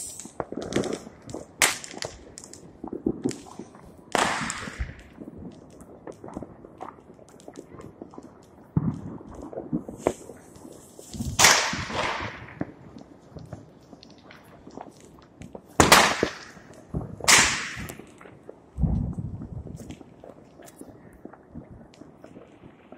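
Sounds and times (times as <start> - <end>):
fireworks bangs: 0.0 - 6.4, 8.7 - 13.7, 15.6 - 20.1
firework pops and crackles: 0.0 - 22.9.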